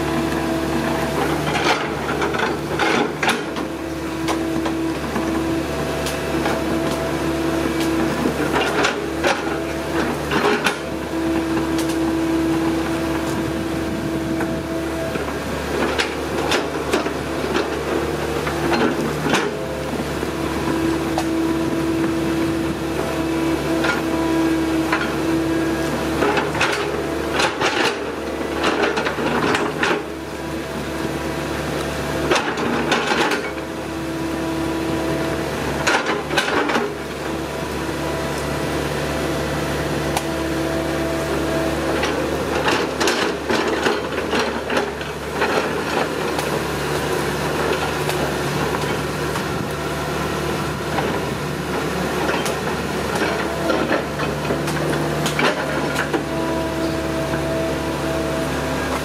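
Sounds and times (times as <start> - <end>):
excavator engine running: 0.0 - 59.0.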